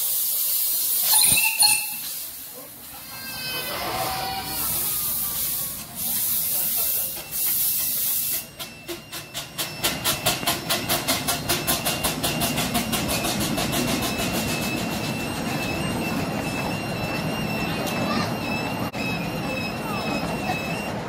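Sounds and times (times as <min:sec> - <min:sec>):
steam locomotive exhaust chuffs: 0:00.0 - 0:03.0, 0:03.9 - 0:17.3
steam hissing: 0:00.0 - 0:15.2.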